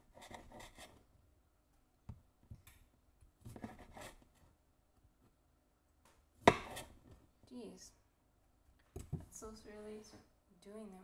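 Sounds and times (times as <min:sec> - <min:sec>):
knife cutting and scraping: 0:00.1 - 0:01.0, 0:03.5 - 0:04.3, 0:06.5 - 0:07.1
knife tapping cutting board: 0:06.5 - 0:06.9.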